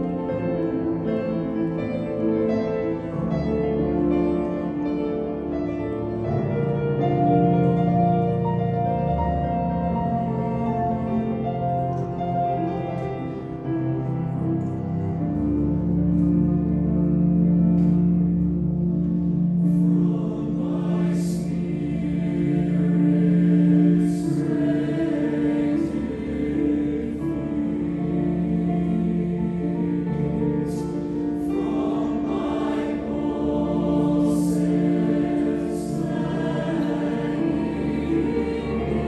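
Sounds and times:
mixed choir singing in harmony: 0:00.0 - 0:39.0.

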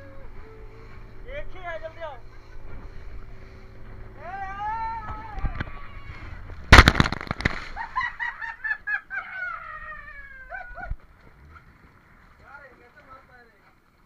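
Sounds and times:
people crying out and shrieking: 0:09.1 - 0:11.0.

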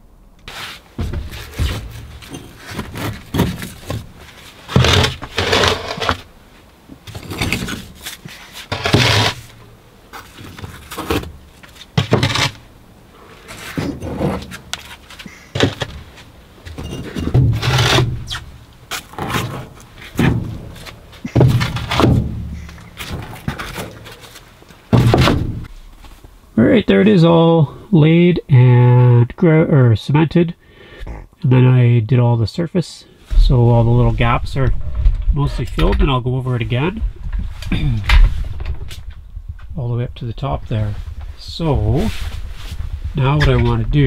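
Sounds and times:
bricks scraping: 0:00.5 - 0:06.3, 0:07.1 - 0:12.7, 0:16.7 - 0:25.3
dull knocks of bricks: 0:01.0 - 0:06.2, 0:16.7 - 0:24.0, 0:24.9 - 0:25.7.

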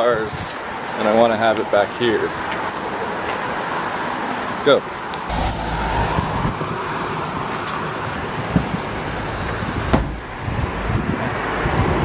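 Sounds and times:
street noise: 0:05.2 - 0:07.9.

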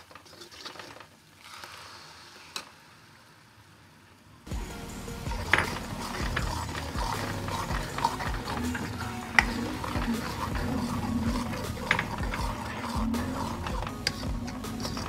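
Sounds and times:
spoon scraping wet paste: 0:05.2 - 0:15.0.

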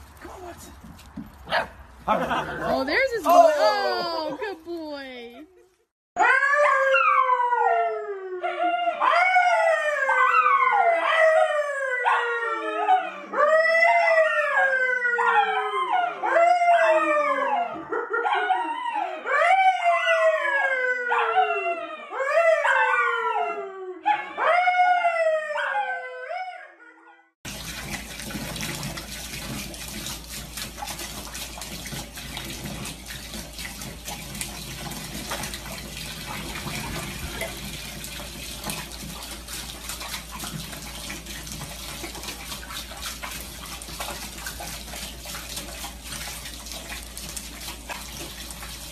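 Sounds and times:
man howling: 0:02.1 - 0:04.6
dog howling: 0:06.2 - 0:27.0
water rushing into bathtub: 0:27.5 - 0:48.9.

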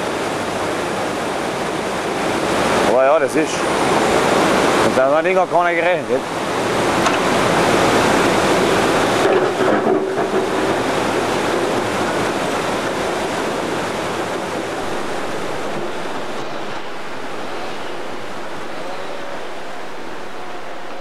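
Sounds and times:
steady rushing noise: 0:05.8 - 0:21.0.

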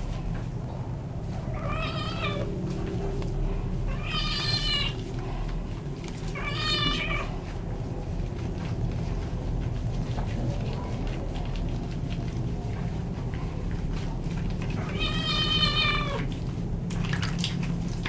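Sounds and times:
cat meowing: 0:01.5 - 0:02.5, 0:03.9 - 0:05.0, 0:06.4 - 0:07.3, 0:14.8 - 0:16.3.

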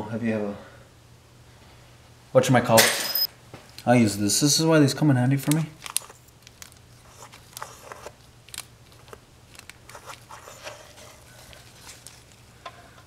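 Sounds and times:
tool clicking and paper rustling: 0:05.4 - 0:12.5.

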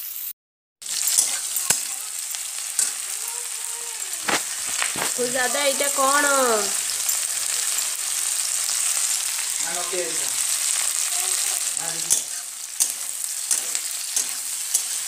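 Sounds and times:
vegetables sizzling in oil: 0:00.0 - 0:15.0
steel spatula scraping pan: 0:12.0 - 0:15.0.

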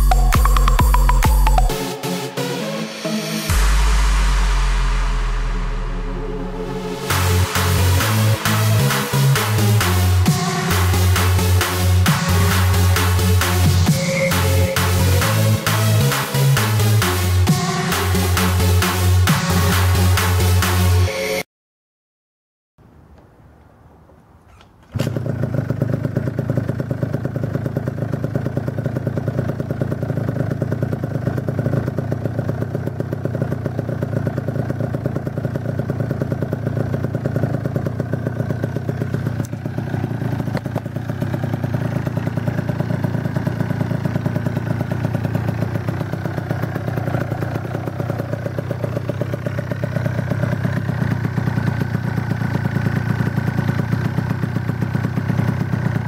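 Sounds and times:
scooter two-stroke engine running: 0:00.0 - 0:02.4, 0:06.6 - 0:20.9, 0:24.5 - 0:56.0.

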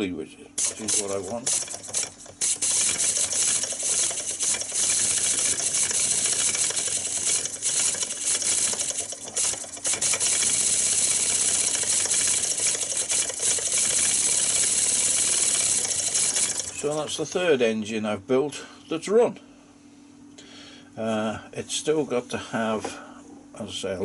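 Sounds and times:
engine mechanical ticking: 0:00.6 - 0:17.2.

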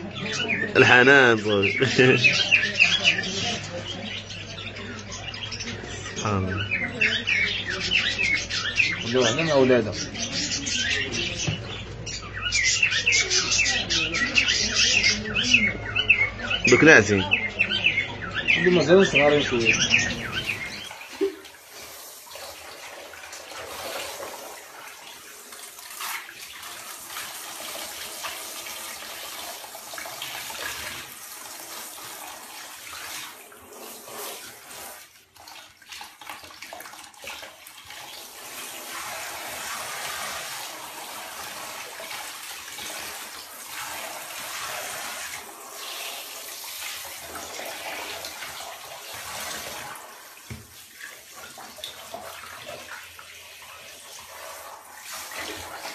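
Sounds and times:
shower head spraying water: 0:20.1 - 0:35.2, 0:37.8 - 0:55.9.

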